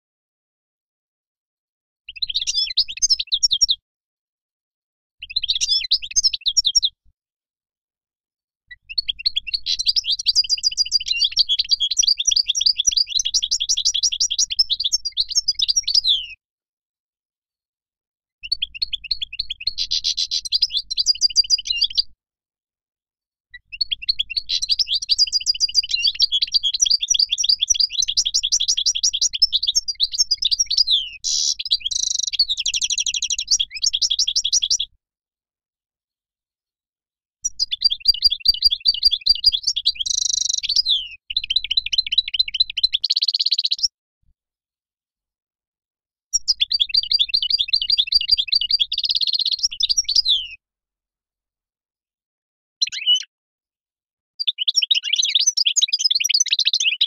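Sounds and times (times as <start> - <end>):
goldfinch twittering song: 2.1 - 3.8, 5.2 - 6.9, 8.7 - 16.4, 18.4 - 22.1, 23.6 - 34.9, 37.4 - 43.9, 46.4 - 50.6, 52.8 - 53.3, 54.4 - 57.0.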